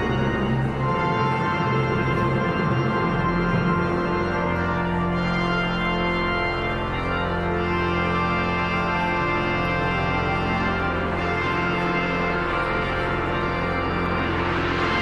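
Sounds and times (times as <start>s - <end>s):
deep organ pedal bass: 0.0s - 15.0s
organ and brass chords: 0.0s - 15.0s.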